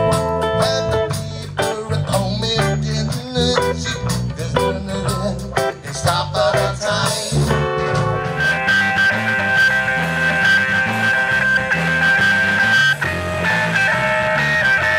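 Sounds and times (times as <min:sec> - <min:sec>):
bass: 0:00.0 - 0:14.9
drums: 0:00.0 - 0:14.9
electric guitar: 0:00.0 - 0:14.9
man singing into a microphone: 0:00.5 - 0:08.2.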